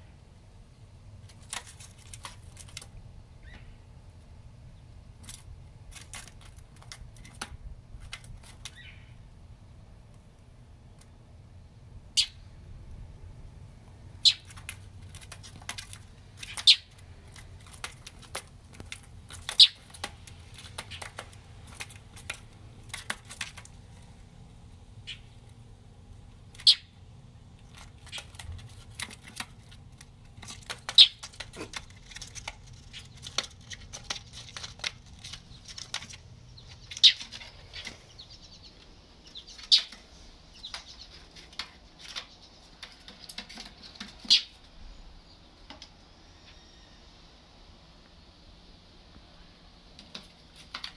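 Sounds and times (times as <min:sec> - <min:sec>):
claws scratching on siding: 0:01.2 - 0:02.9, 0:05.2 - 0:08.9, 0:14.2 - 0:24.3, 0:27.4 - 0:38.6, 0:39.2 - 0:44.8
bird chick chipping: 0:03.4 - 0:03.8, 0:08.6 - 0:09.2, 0:12.1 - 0:12.5, 0:14.2 - 0:17.0, 0:17.6 - 0:23.6, 0:25.0 - 0:25.4, 0:26.5 - 0:27.0, 0:30.4 - 0:44.6.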